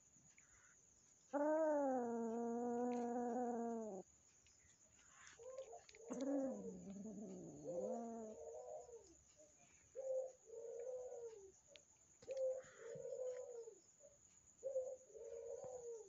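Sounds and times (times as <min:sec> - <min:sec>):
dove cooing: 0:01.3 - 0:04.0, 0:05.2 - 0:09.2, 0:09.9 - 0:11.6, 0:12.2 - 0:16.0.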